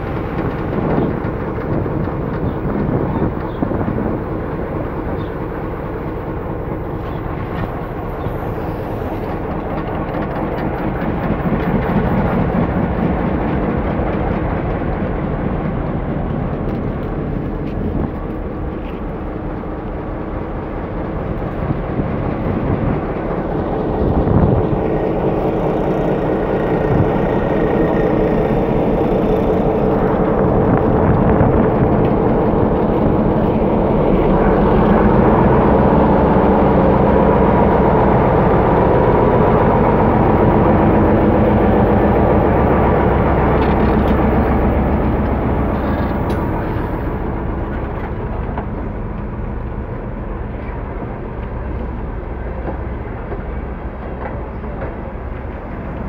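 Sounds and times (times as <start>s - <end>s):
diesel locomotive engine drone: 0.0s - 56.0s.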